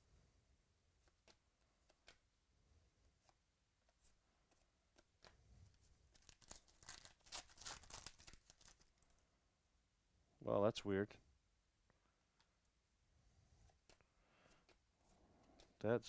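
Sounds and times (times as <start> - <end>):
trading cards being handled: 1.0 - 2.3, 3.1 - 9.2, 13.6 - 15.8
foil wrapper crinkling and tearing: 6.1 - 9.1.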